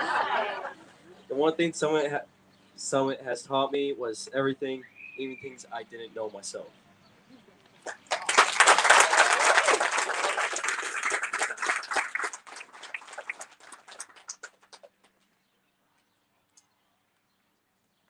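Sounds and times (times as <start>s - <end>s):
audience applauding: 7.8s - 14.9s.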